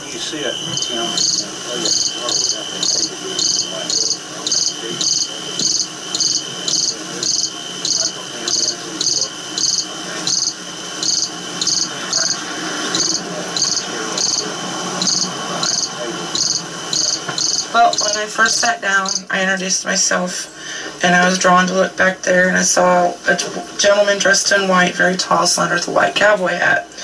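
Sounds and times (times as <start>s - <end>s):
faint steady high tone: 0.0s - 19.4s
insects chirping: 0.0s - 25.4s.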